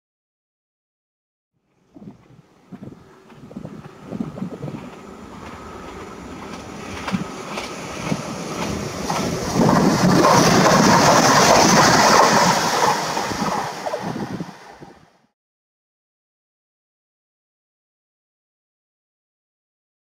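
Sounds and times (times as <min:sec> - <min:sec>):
train rumbling on rails: 0:01.6 - 0:15.3
train wheel clicks: 0:02.8 - 0:14.8.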